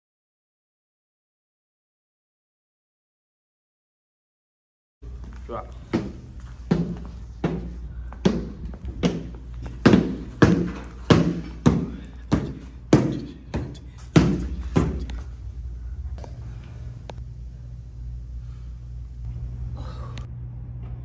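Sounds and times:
steady low hum: 0:05.0 - 0:21.0
dull thuds: 0:05.9 - 0:15.2.

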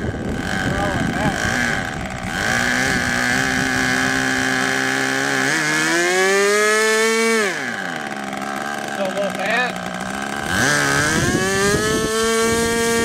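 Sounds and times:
small two-stroke engine revving: 0:00.0 - 0:13.0.

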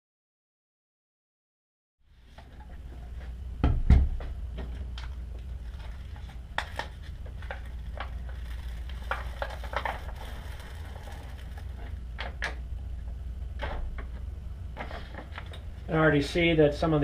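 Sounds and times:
steady low hum: 0:02.0 - 0:17.0
paper rustling and crinkling: 0:05.5 - 0:12.0.

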